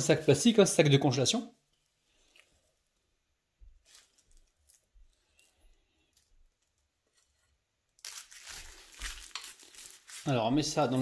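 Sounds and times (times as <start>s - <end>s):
plastic bag crinkling: 3.6s - 11.0s.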